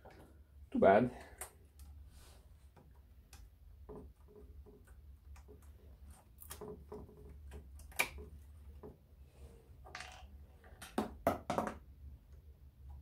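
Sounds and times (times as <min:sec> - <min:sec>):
small clicks and taps: 0:02.7 - 0:09.0.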